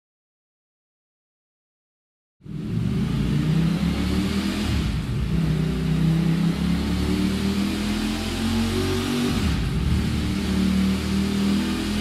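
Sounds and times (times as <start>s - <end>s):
motorcycle engine running: 2.5s - 12.0s.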